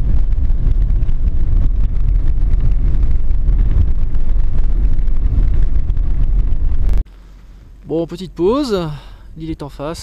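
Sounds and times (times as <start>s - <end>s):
wind buffeting microphone: 0.0s - 7.1s
crackling: 0.0s - 7.2s
vehicle rumble: 0.0s - 8.1s.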